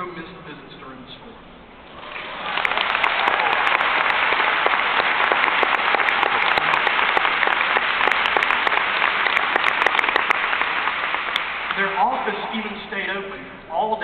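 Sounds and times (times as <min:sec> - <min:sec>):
audience applause: 0:01.9 - 0:12.2
close sharp hand claps: 0:02.0 - 0:11.9.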